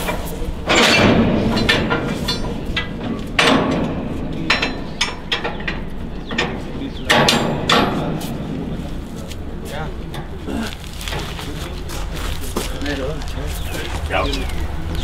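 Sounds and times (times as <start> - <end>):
metal clanks and knocks: 0.0 - 9.2.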